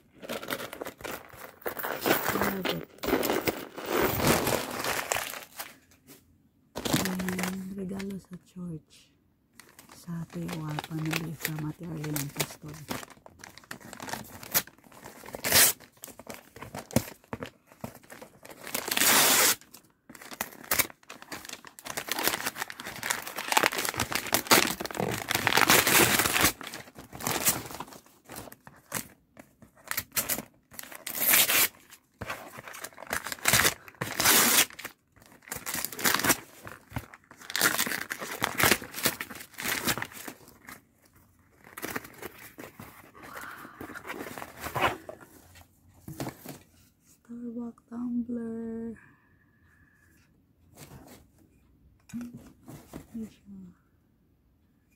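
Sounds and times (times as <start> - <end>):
wrapping paper tearing and crumpling: 0.2 - 5.9, 6.8 - 8.1, 9.6 - 29.2, 29.8 - 40.8.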